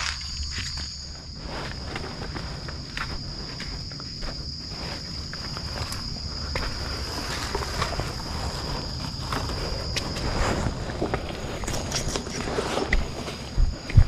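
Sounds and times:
footsteps and scuffs: 0:00.0 - 0:14.0
insects buzzing: 0:00.0 - 0:14.0.

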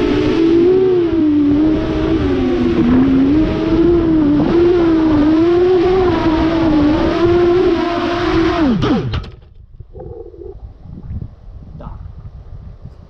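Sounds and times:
drone motors whining: 0:00.0 - 0:09.4.

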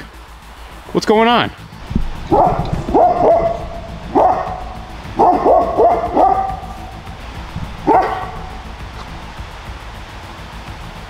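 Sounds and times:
dog barking: 0:02.1 - 0:08.8.

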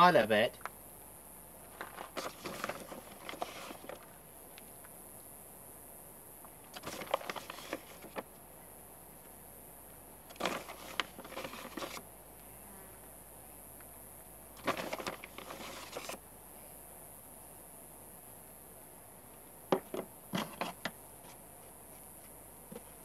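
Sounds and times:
powder rustling: 0:01.7 - 0:04.2, 0:06.8 - 0:08.2, 0:10.3 - 0:12.0, 0:14.6 - 0:16.2.

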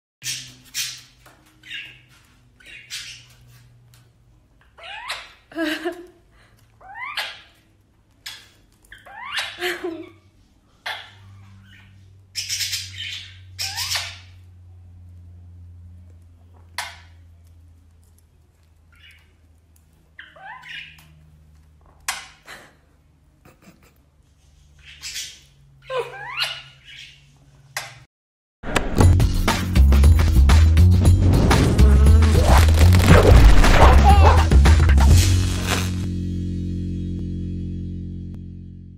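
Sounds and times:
parakeets chirping: 0:00.2 - 0:03.6, 0:04.8 - 0:05.5, 0:06.8 - 0:07.6, 0:08.3 - 0:09.6, 0:10.8 - 0:14.4, 0:20.2 - 0:21.0, 0:24.8 - 0:27.3.

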